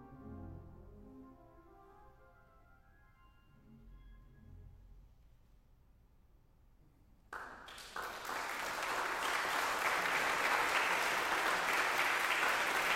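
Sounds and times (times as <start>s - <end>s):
audience applause: 7.4s - 12.9s.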